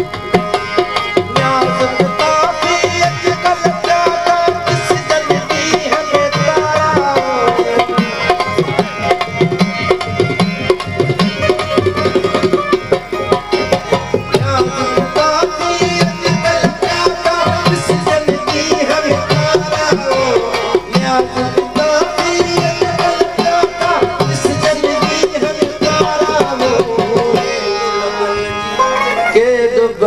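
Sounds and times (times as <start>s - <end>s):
hand drums: 0.0s - 29.2s
harmonium: 0.0s - 30.0s.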